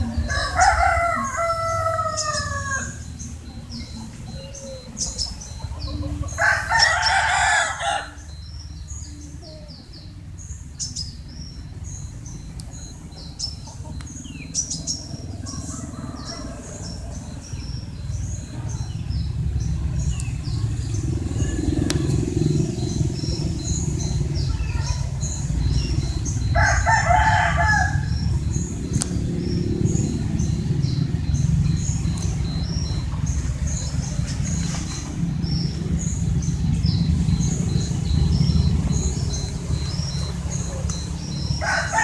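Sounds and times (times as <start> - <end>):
rooster crowing: 0.0 - 3.1, 5.6 - 8.4, 15.3 - 17.5, 26.2 - 28.6, 39.7 - 42.0
steady low rumble: 0.0 - 7.3, 8.1 - 42.0
small birds chirping: 0.0 - 42.0.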